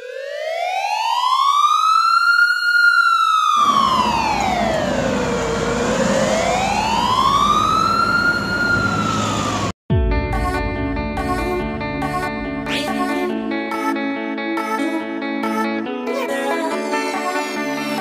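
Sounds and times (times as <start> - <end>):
siren wailing: 0.0 - 9.8.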